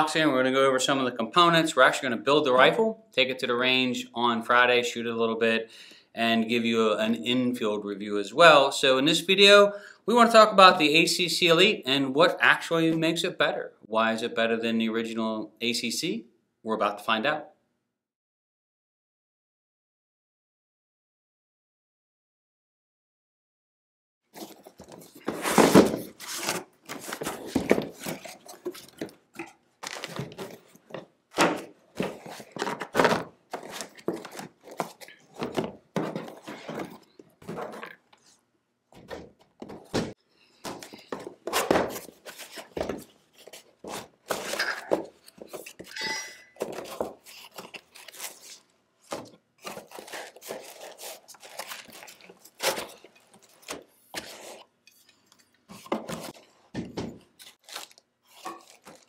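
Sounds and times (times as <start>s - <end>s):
paper and plastic rustling: 24.3s - 38.4s, 40.6s - 46.0s, 46.6s - 54.7s, 57.4s - 59.0s
boxes thudding on counter: 25.2s - 29.1s, 29.9s - 38.0s, 39.0s - 43.1s.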